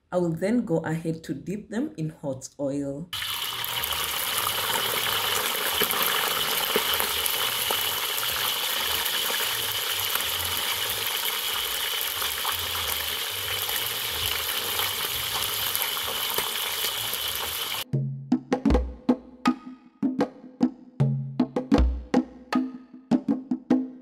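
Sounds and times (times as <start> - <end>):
fish deep-frying sizzle: 3.2 - 17.9.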